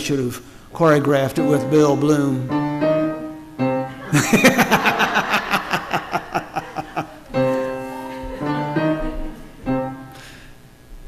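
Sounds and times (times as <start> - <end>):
soft held keyboard chords: 0.8 - 4.6, 6.3 - 11.0
burst of laughter: 4.0 - 7.2.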